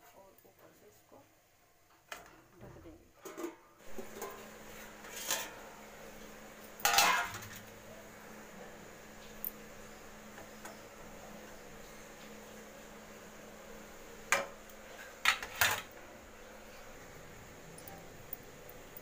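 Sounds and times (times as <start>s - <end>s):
faint low hum: 0.0s - 19.0s
metal lid clanking on pot: 6.8s - 7.6s.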